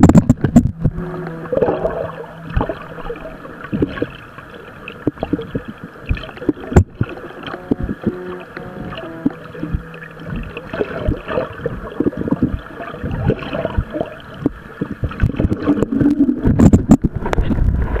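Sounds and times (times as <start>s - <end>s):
muffled underwater water movement: 0.0s - 18.0s.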